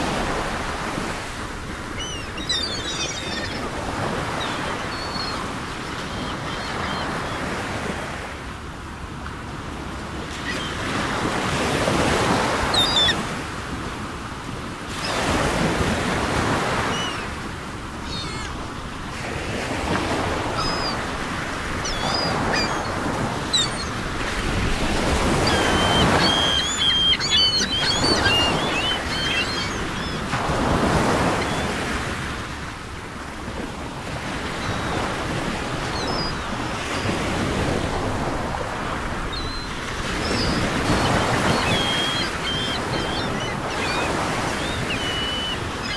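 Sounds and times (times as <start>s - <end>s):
ocean waves on shore: 0.0s - 45.9s
high bird calls: 1.9s - 7.5s, 12.6s - 13.2s, 16.5s - 17.4s, 18.0s - 18.7s, 19.9s - 31.8s, 39.3s - 45.9s.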